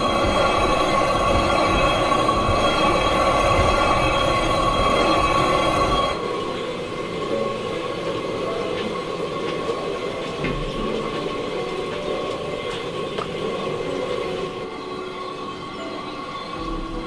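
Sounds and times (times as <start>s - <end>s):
fire rushing under wok: 0.0s - 7.4s.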